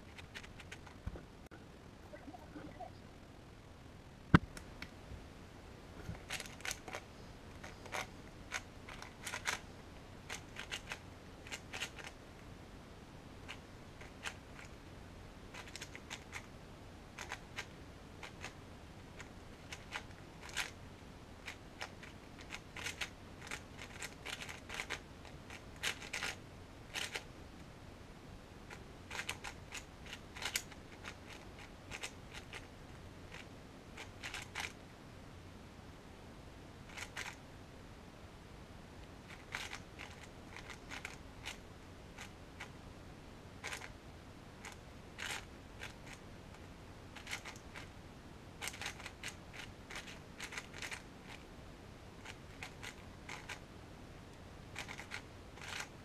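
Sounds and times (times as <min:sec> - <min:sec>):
puzzle cube clicking turns: 0:00.1 - 0:01.0, 0:06.1 - 0:09.6, 0:10.3 - 0:12.2, 0:13.4 - 0:14.8, 0:15.5 - 0:16.5, 0:17.2 - 0:18.6, 0:19.2 - 0:20.8, 0:21.4 - 0:27.3, 0:28.7 - 0:32.7, 0:33.3 - 0:34.8, 0:36.9 - 0:37.4, 0:39.3 - 0:41.6, 0:43.6 - 0:43.9, 0:44.6 - 0:46.2, 0:47.2 - 0:47.9, 0:48.6 - 0:51.4, 0:52.2 - 0:53.6, 0:54.8 - 0:55.9.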